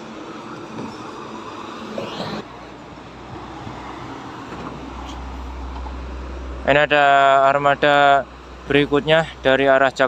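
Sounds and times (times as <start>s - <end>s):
highway traffic rushing: 0.0s - 10.0s
short rising whine: 1.8s - 2.6s.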